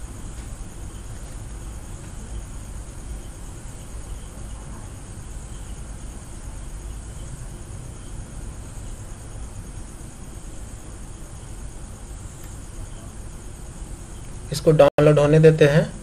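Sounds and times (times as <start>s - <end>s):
faint high rapid pulsing: 0.0s - 16.0s
high-pitched hiss: 0.0s - 16.0s.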